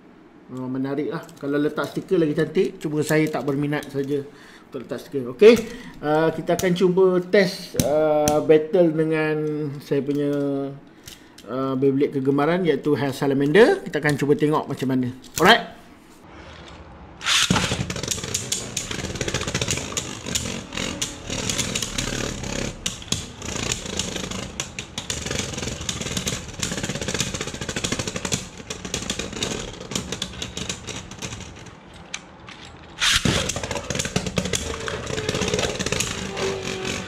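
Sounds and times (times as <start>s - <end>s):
spinning tops whirring and clattering: 16.5s - 37.0s
spinning tops knocking together: 17.2s - 31.6s.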